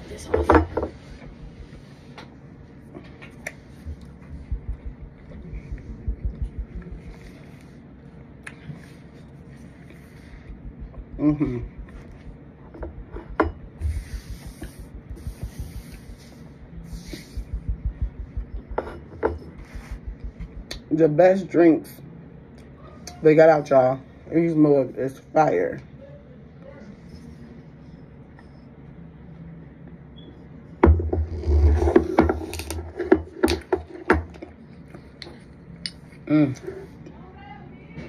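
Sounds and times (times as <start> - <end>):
low rumble of handling noise: 0.0 - 21.0.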